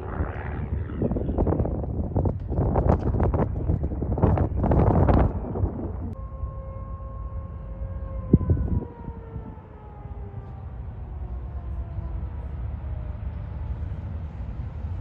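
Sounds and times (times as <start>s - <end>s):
propeller airplane engine: 0.0s - 6.5s
wind rumble on microphone: 0.0s - 15.0s.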